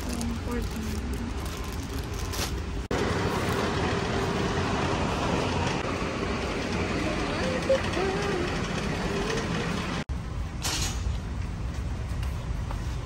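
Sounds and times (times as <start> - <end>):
shopping cart wheels rumbling: 0.0 - 10.1.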